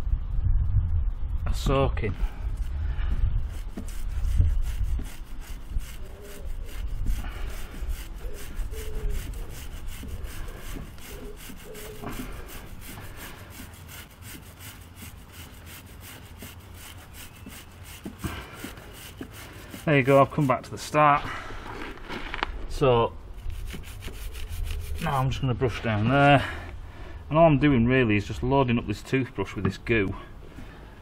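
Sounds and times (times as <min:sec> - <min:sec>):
toothbrush scrubbing a chain: 0:03.4 - 0:20.7, 0:23.4 - 0:25.2.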